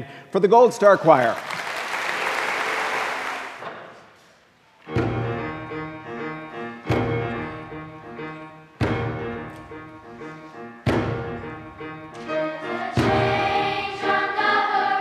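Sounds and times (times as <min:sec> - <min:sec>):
applause: 0:01.0 - 0:03.6
piano chords: 0:04.9 - 0:15.0.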